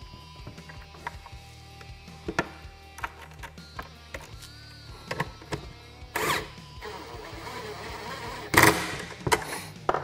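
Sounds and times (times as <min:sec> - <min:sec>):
cordless drill driving bolts: 0:06.2 - 0:09.1.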